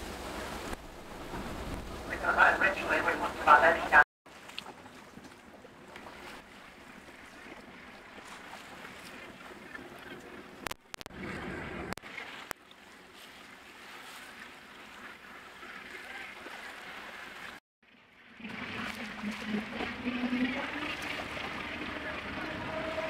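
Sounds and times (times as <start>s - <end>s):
sea wash against boat: 0.0s - 23.0s
wind: 0.0s - 23.0s
low wavering hum: 18.0s - 23.0s.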